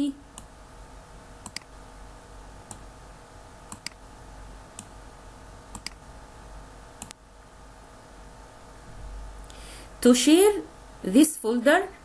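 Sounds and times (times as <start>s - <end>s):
faint steady hum: 0.0s - 12.0s
computer mouse button clicking: 1.4s - 1.7s, 3.7s - 4.0s, 5.7s - 6.0s.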